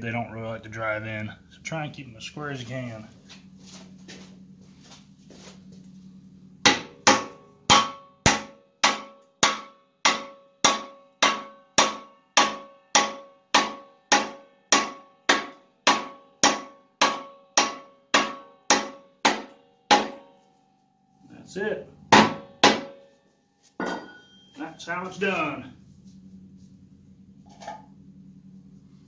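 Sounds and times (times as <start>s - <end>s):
hammer blows ringing: 6.6s - 20.4s, 22.1s - 23.2s, 23.8s - 25.3s.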